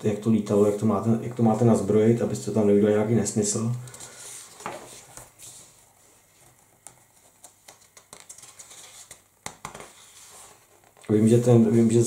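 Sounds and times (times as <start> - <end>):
paper rustling: 3.8 - 11.2
fingers tapping on pages: 6.7 - 10.0.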